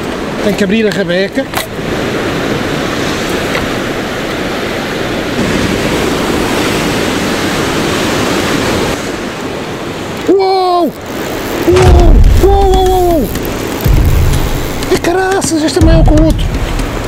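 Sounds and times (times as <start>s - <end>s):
surf breaking against rocks: 0.0s - 17.0s
wind buffeting microphone: 10.9s - 17.0s.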